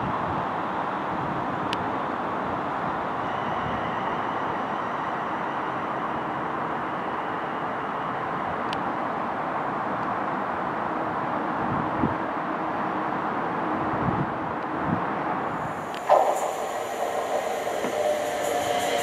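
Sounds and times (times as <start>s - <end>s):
faint high whine: 3.2s - 9.2s, 15.6s - 19.0s
train rolling rumble: 15.4s - 19.0s.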